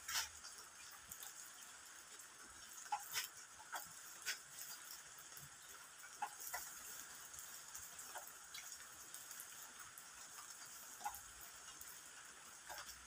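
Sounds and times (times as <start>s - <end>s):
soft ticks: 2.8s - 12.0s, 12.6s - 13.0s.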